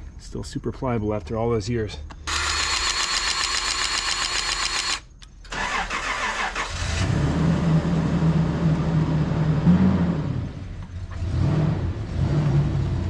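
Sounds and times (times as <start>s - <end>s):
truck engine starting and idling: 5.4s - 13.0s.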